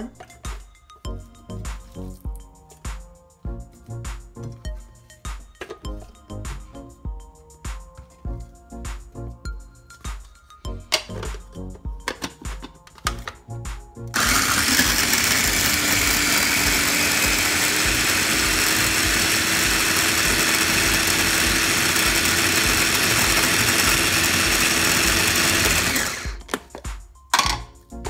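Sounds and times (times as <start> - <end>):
food processor running: 14.2 - 26.4.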